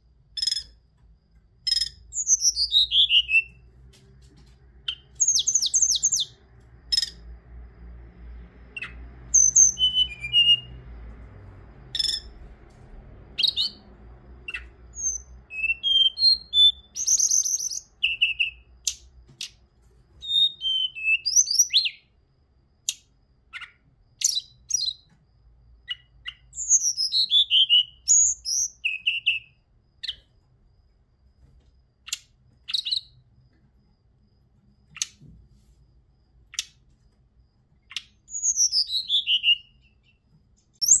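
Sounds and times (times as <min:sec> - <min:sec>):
bird singing high clear phrases: 0:00.3 - 0:00.8, 0:01.6 - 0:03.7, 0:04.8 - 0:07.2, 0:08.7 - 0:10.8, 0:11.9 - 0:12.5, 0:13.4 - 0:22.1, 0:22.9 - 0:25.2, 0:25.8 - 0:30.3, 0:32.1 - 0:33.2, 0:37.9 - 0:41.0.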